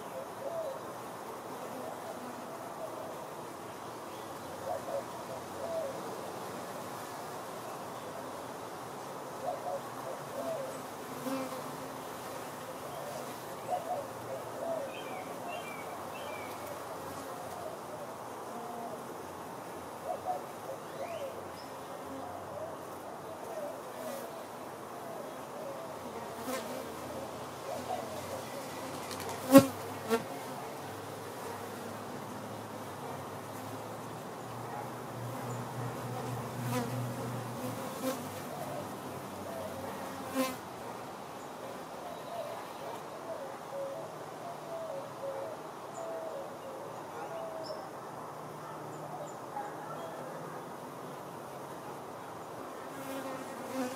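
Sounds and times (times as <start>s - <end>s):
bees buzzing past: 10.7s - 13.7s, 25.9s - 40.7s, 52.8s - 53.9s.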